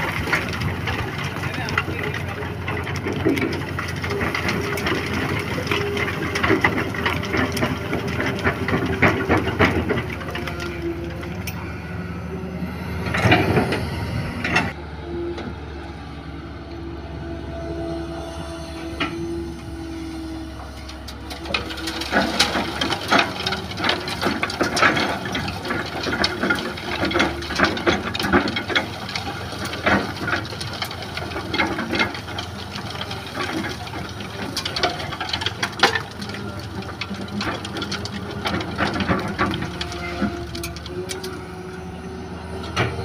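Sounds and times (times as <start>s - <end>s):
excavator diesel engine: 0.0s - 43.0s.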